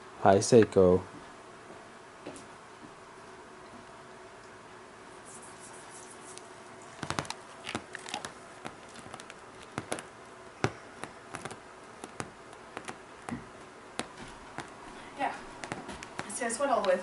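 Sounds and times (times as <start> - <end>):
faint steady hum: 0.0 - 17.0
sharp taps and knocks: 7.0 - 14.8, 15.4 - 16.4.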